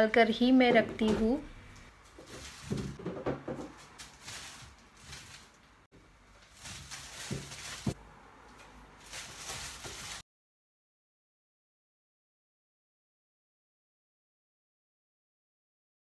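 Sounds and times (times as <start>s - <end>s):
produce set into plastic baskets: 0.7s - 10.2s
plastic bags rustling: 1.0s - 8.0s, 8.6s - 10.2s.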